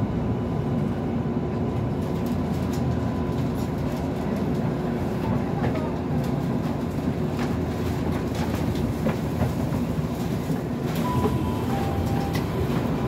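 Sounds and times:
train rumble: 0.0s - 13.0s
brief high tones: 11.0s - 13.0s.

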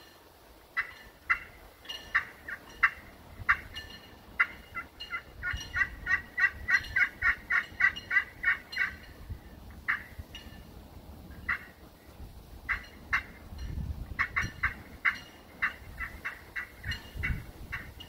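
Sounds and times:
turkey call yelps: 0.8s - 9.1s, 9.8s - 10.2s, 11.4s - 11.8s, 12.7s - 13.4s, 14.2s - 18.0s.

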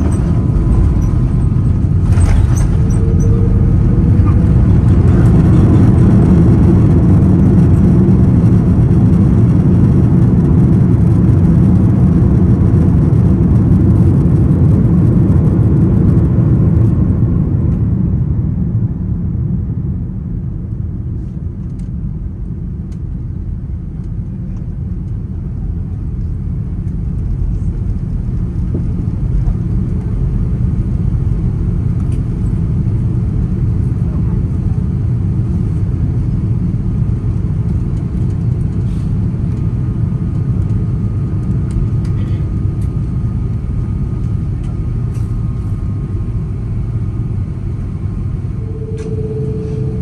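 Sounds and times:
jet engines and wheels rumbling: 0.0s - 50.0s.

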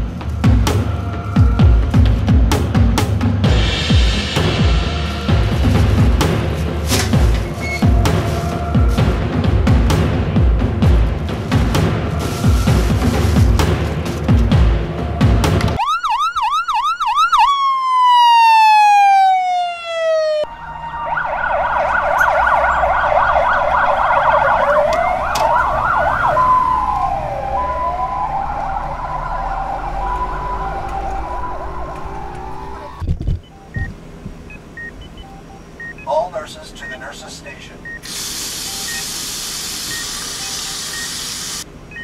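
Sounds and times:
emergency vehicle sirens wailing: 0.0s - 3.6s, 4.4s - 33.9s.

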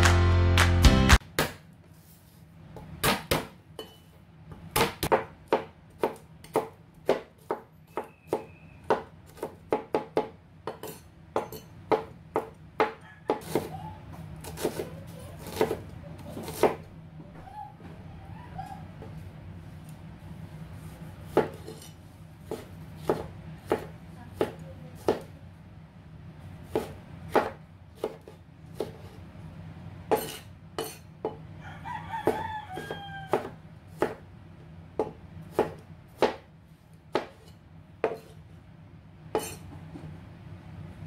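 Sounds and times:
cleaver chopping on wooden board: 4.8s - 10.8s, 22.5s - 25.3s, 26.7s - 29.0s, 32.2s - 34.2s, 35.0s - 36.5s, 37.1s - 38.3s
rooster crowing: 12.9s - 14.0s, 31.5s - 33.6s
steady low hum: 13.8s - 31.6s.

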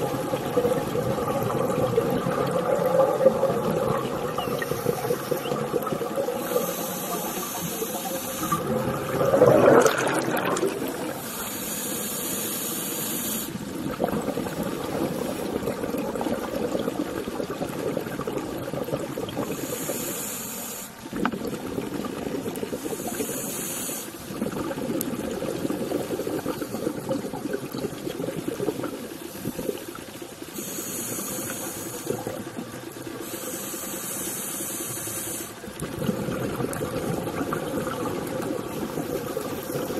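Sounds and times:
bubbling exhalations: 0.0s - 11.5s, 13.6s - 20.0s, 24.2s - 30.0s, 35.6s - 39.9s
regulator hiss on inhalation: 4.3s - 8.7s, 11.1s - 13.6s, 19.4s - 21.0s, 22.8s - 24.2s, 30.5s - 32.4s, 33.2s - 35.7s, 38.9s - 39.9s.

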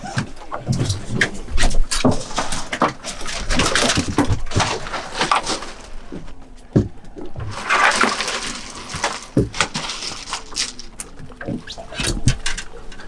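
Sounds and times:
knocks and clatters on boat: 0.0s - 13.0s
water splashing: 6.9s - 13.0s.

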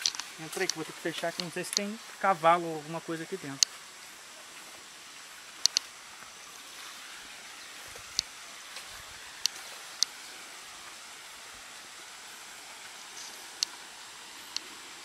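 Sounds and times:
sharp high clicks: 0.0s - 2.0s, 5.6s - 5.9s
water cascade hissing: 0.0s - 15.0s.

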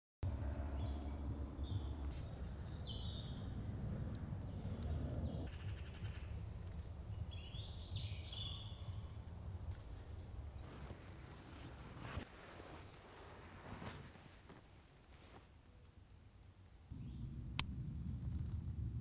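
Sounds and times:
steady low rumble: 0.2s - 13.6s, 16.9s - 19.0s
songbird chirping: 0.6s - 14.6s.

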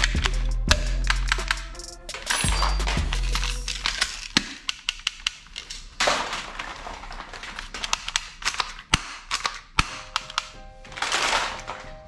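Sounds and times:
plastic toy guns clicking and clattering: 0.0s - 12.0s.

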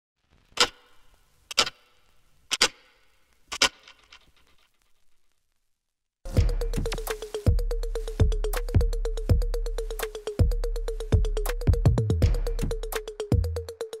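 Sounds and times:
music with a beat: 6.3s - 14.0s.

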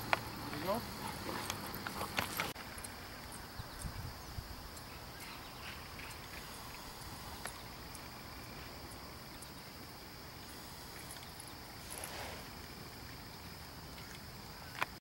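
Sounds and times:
faint high hiss: 0.0s - 15.0s
soft rustle: 10.4s - 13.2s.

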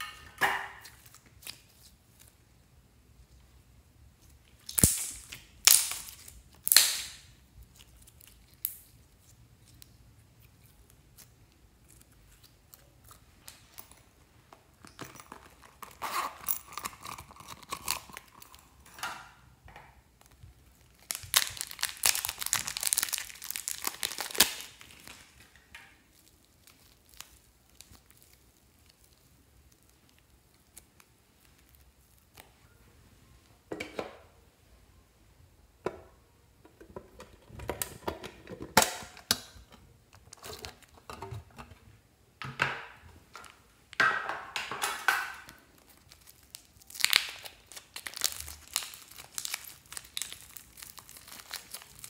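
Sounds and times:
plastic bag crinkling: 14.8s - 18.9s, 20.2s - 32.7s, 44.9s - 52.0s.

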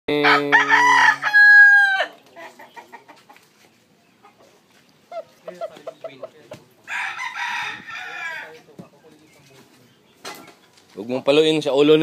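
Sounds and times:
rooster crowing: 0.2s - 2.2s, 6.9s - 8.6s.

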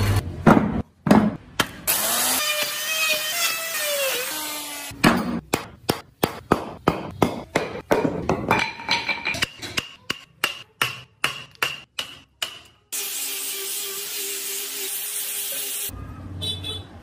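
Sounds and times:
hammer striking chisel: 5.0s - 12.8s.

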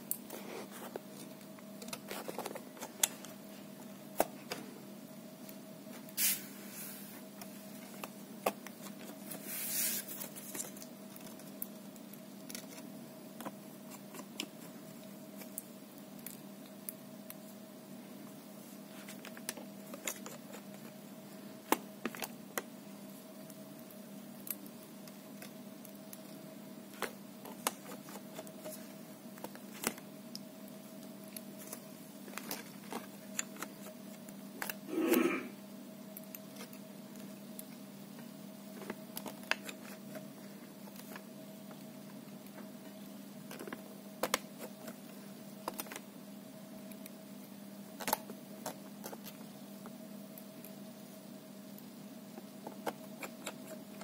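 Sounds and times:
steady hum: 0.0s - 54.0s
brief rustling hisses: 6.2s - 7.2s, 9.4s - 10.1s.

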